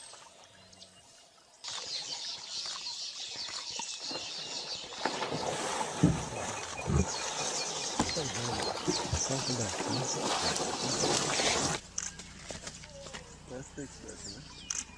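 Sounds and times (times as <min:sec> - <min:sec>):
water splashing and churning: 0:01.6 - 0:13.9.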